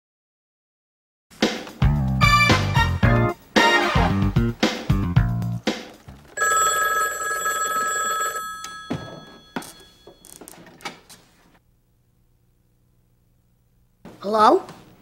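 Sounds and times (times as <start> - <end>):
telephone ringing: 6.4 - 10.6.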